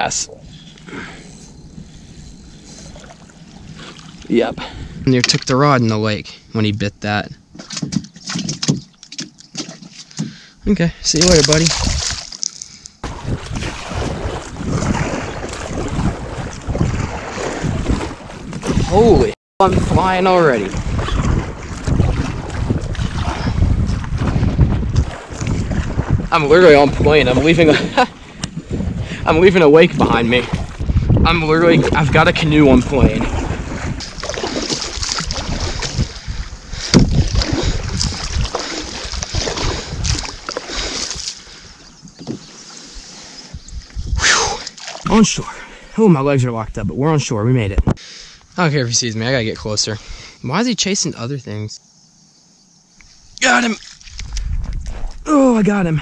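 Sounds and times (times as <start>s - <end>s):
wind buffeting microphone: 0.0s - 5.8s, 11.2s - 12.3s, 13.0s - 45.4s, 54.0s - 56.0s
water rushing along canoe: 0.6s - 5.1s, 7.5s - 46.0s, 53.1s - 56.0s.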